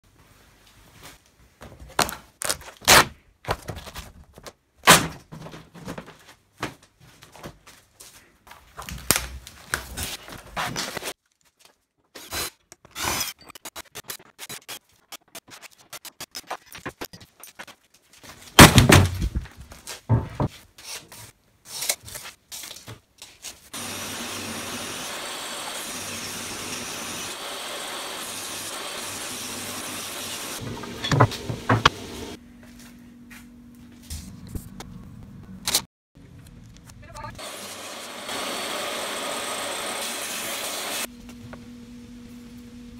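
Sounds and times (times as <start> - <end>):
folding table knocks and scrapes: 20.1 - 20.5, 30.9 - 32.0
table saw running: 23.8 - 32.4, 37.4 - 41.1.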